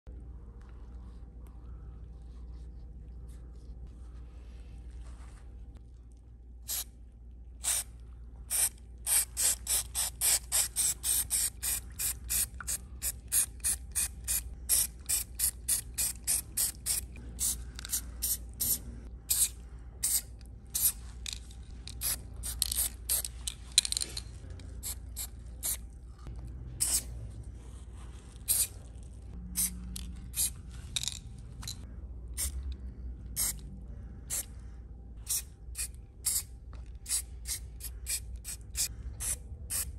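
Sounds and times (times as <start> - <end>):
spray paint can hissing: 7.6 - 7.8, 8.5 - 21.0, 22.0 - 23.3, 26.8 - 27.1, 28.5 - 28.7, 35.2 - 39.9.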